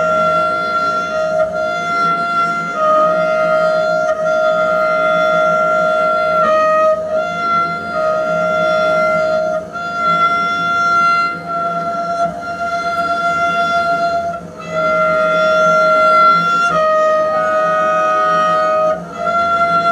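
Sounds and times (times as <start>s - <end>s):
double bass bowed drone: 0.0s - 19.9s.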